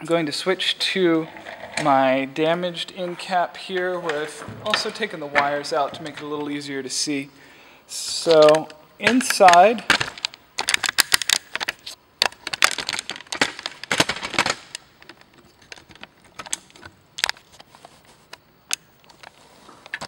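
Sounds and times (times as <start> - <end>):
plastic parts clicking on wood: 3.0 - 6.6, 8.2 - 17.6.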